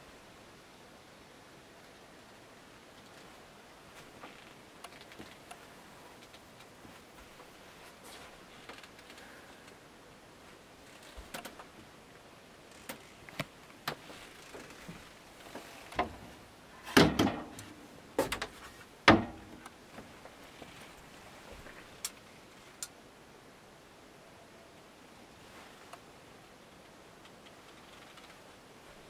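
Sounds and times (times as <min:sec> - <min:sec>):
cupboard doors banging shut: 0:16.9 - 0:18.5, 0:19.1 - 0:19.6
cupboard doors clicking: 0:17.0 - 0:18.5, 0:19.1 - 0:19.6.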